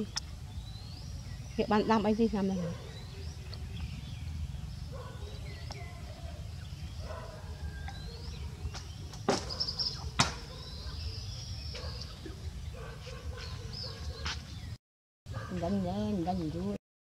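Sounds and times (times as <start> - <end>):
small birds chirping: 0.0 - 14.8, 15.4 - 16.8.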